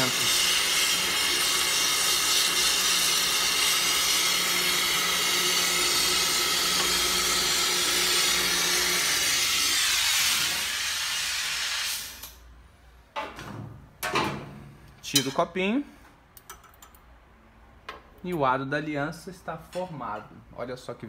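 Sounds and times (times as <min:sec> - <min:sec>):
gas torch flame hissing: 0:00.0 - 0:12.5.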